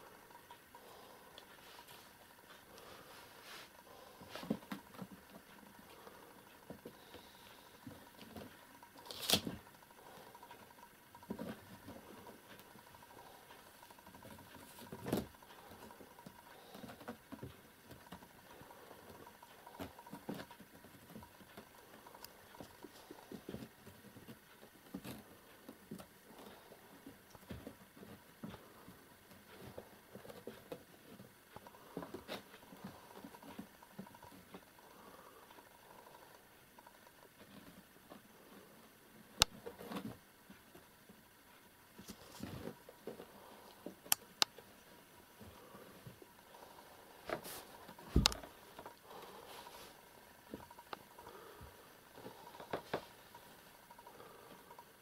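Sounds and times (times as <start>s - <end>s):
kittens scratching and rustling: 0.0s - 55.0s.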